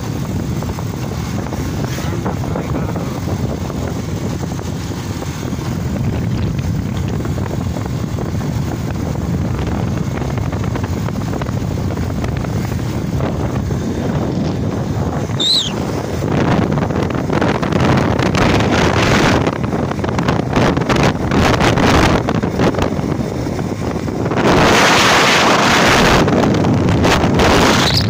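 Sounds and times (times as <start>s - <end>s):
vehicle running noise: 0.0s - 28.0s
wind rumbling on microphone: 0.0s - 28.0s
short high chirp: 15.4s - 15.9s.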